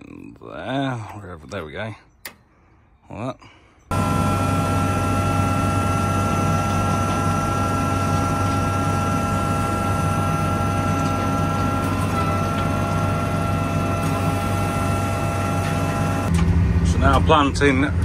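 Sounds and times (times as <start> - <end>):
seed fan whine: 3.9 - 18.0
tractor engine running: 3.9 - 18.0.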